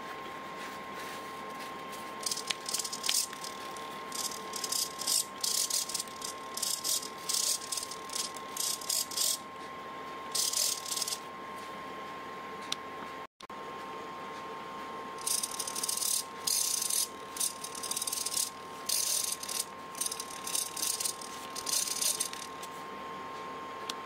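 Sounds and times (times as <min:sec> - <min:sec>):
servo motor whirring: 0:02.2 - 0:09.4, 0:10.4 - 0:11.2, 0:15.2 - 0:22.6.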